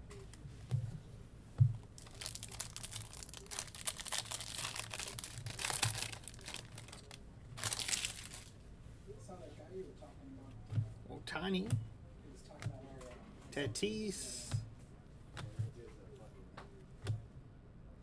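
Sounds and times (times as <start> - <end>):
foil wrapper crinkling: 2.0 - 8.6.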